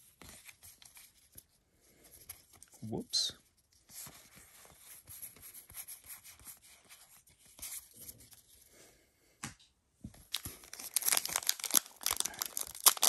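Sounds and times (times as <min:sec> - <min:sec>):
trading cards rustling: 0:10.2 - 0:13.0
foil wrapper crinkling and tearing: 0:10.3 - 0:13.0.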